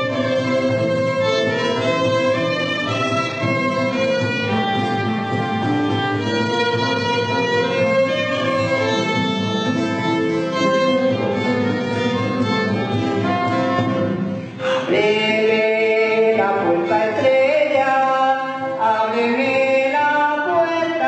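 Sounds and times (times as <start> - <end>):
violin-like bowed string melody: 0.0 - 14.8
small band playing: 0.0 - 19.8.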